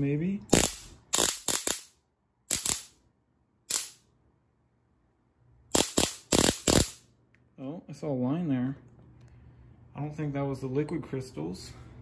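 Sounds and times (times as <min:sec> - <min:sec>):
spark gap snapping cracks: 0:00.5 - 0:01.9, 0:02.5 - 0:03.0, 0:03.7 - 0:04.0, 0:05.7 - 0:07.0.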